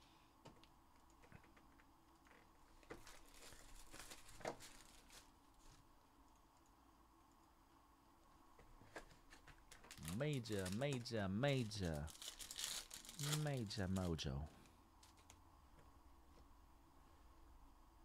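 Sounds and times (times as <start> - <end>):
plastic wrap crinkling and tearing: 2.9 - 5.4, 9.3 - 14.2.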